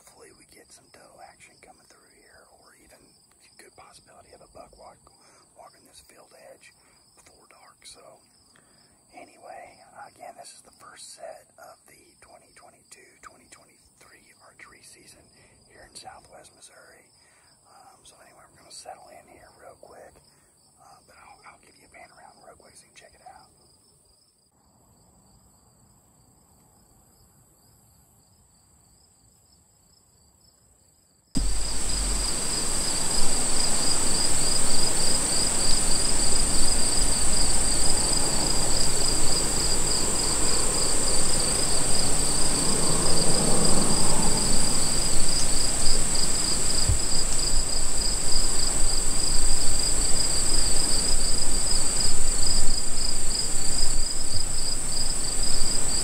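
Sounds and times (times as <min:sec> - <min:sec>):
high-pitched insect trill: 0:25.2 - 0:56.0
fast pulsing insect chirp: 0:31.4 - 0:56.0
rushing noise with low rumble: 0:31.4 - 0:56.0.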